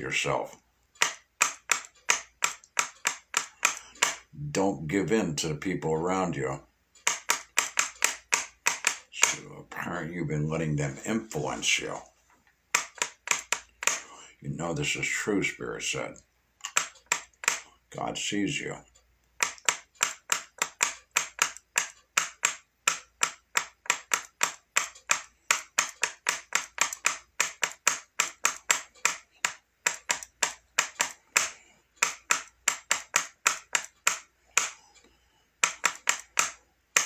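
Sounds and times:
rapid sharp clicks: 0:00.0 - 0:04.4, 0:07.0 - 0:09.5, 0:12.7 - 0:14.2, 0:16.1 - 0:18.0, 0:19.2 - 0:37.0.

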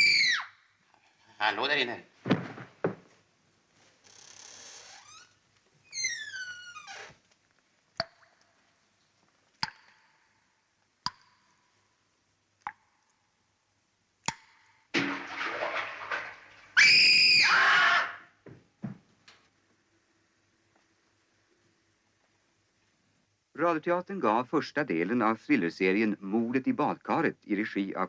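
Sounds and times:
footsteps on hard floor: 0:02.2 - 0:03.2, 0:18.4 - 0:19.2
water splashing: 0:14.9 - 0:16.8
person screaming: 0:16.8 - 0:18.3.

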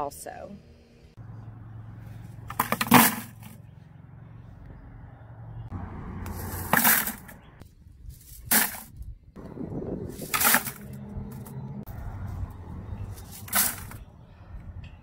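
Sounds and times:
dry pods clattering into bucket: 0:10.2 - 0:10.8, 0:13.3 - 0:14.0.

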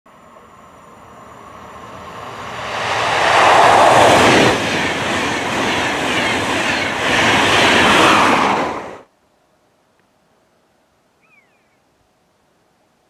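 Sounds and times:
wheel and rail rumble: 0:00.1 - 0:09.0
train passing at speed: 0:00.1 - 0:09.1
rushing air: 0:00.4 - 0:09.0.

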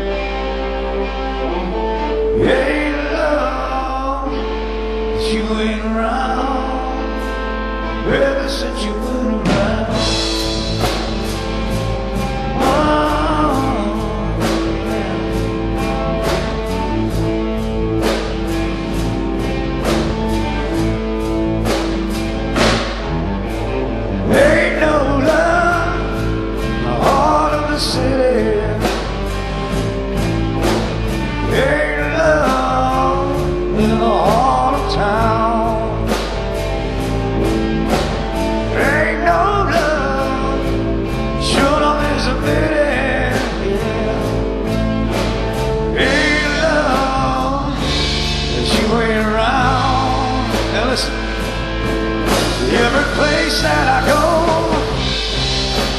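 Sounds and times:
person singing: 0:00.0 - 0:22.2, 0:24.2 - 0:29.4, 0:30.6 - 0:36.4, 0:37.5 - 0:55.9
live rock band playing: 0:00.0 - 0:55.9.

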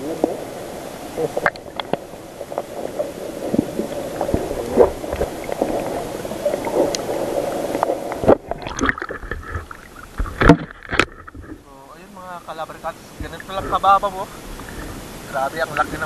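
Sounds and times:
churning water underwater: 0:00.0 - 0:16.0
clicks and knocks underwater: 0:01.4 - 0:11.7.

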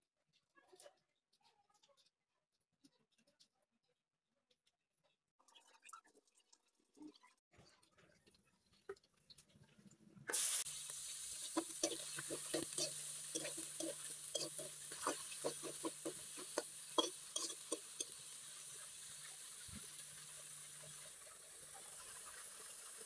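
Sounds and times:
shrimp sizzling in hot oil: 0:10.3 - 0:23.0
spatula scraping and tapping wok: 0:10.6 - 0:21.1.

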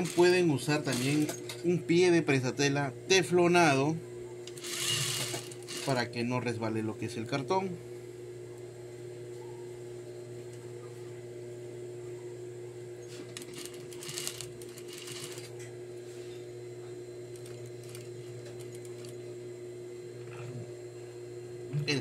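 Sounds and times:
sewing machine stitching: 0:00.0 - 0:01.5, 0:04.5 - 0:06.0, 0:13.3 - 0:15.5, 0:17.3 - 0:19.1.

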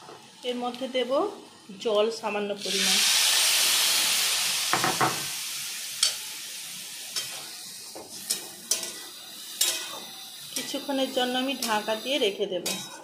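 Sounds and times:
water sizzling in hot pan: 0:00.0 - 0:12.9
metal spatula scraping pan: 0:09.6 - 0:11.9, 0:12.6 - 0:13.0.

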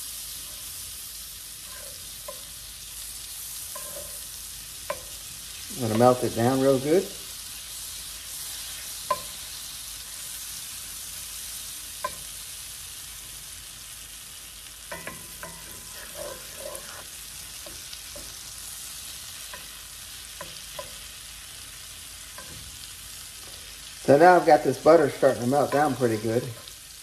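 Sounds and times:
butter sizzling in a skillet: 0:00.0 - 0:27.0
spatula scraping a pan: 0:01.4 - 0:02.6, 0:03.3 - 0:06.9, 0:14.9 - 0:21.1, 0:25.0 - 0:26.8.

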